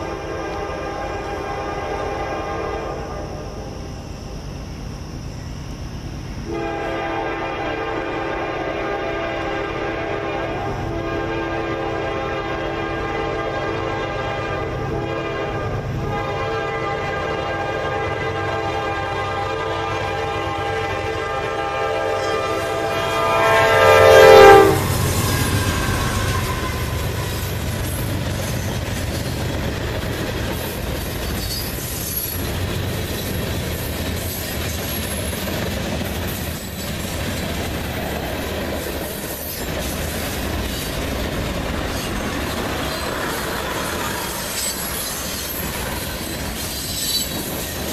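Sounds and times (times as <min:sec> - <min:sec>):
train horn blast: 0:00.0 - 0:03.5, 0:06.5 - 0:27.6
locomotive engines: 0:00.0 - 0:47.9
train wheels clattering on rails: 0:24.1 - 0:47.9.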